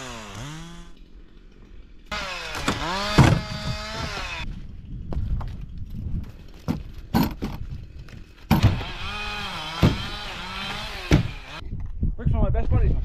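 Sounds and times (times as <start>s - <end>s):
engine humming: 0.0s - 4.5s.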